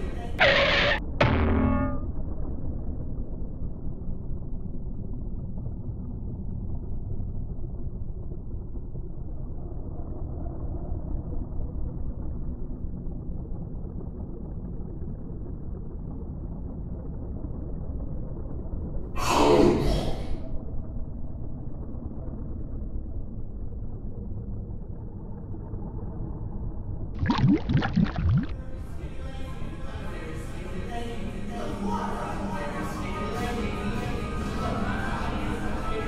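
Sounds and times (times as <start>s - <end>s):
low underwater rumble: 27.2s - 28.6s.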